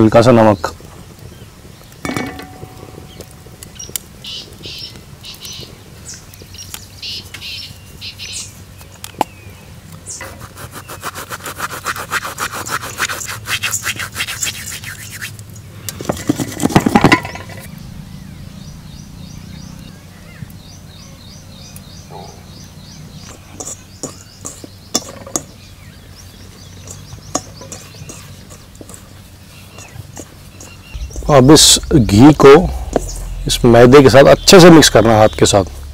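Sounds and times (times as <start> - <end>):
hands rubbing dry flour: 10.2 - 15.4, 26.9 - 33.1.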